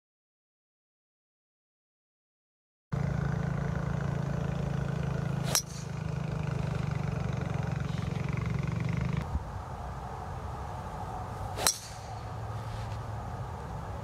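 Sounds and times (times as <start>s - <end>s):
low engine hum: 3.0s - 14.0s
golf ball struck by driver: 5.0s - 6.8s, 11.5s - 12.4s.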